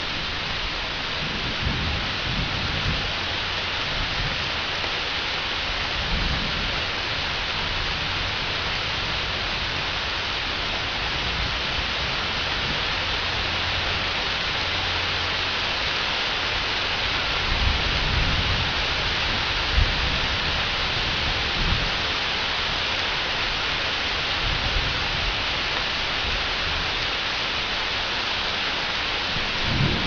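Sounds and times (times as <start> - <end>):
heavy rain falling: 0.0 - 30.0
thunder rumbling: 29.3 - 30.0.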